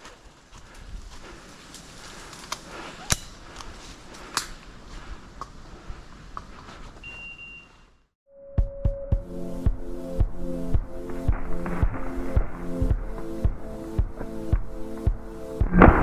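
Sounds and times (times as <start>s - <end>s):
short high beep: 7.0s - 8.0s.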